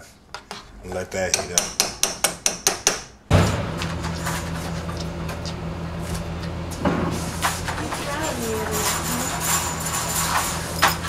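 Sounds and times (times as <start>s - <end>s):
steady low hum: 3.2s - 11.0s.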